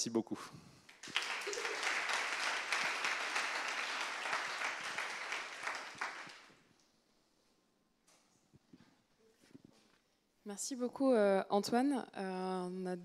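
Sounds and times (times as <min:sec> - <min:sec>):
audience applauding: 0:00.9 - 0:06.6.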